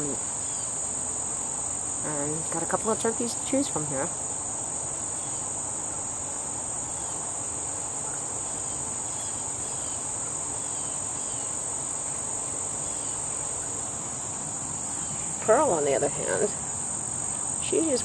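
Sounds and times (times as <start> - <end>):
crickets trilling: 0.0 - 18.0.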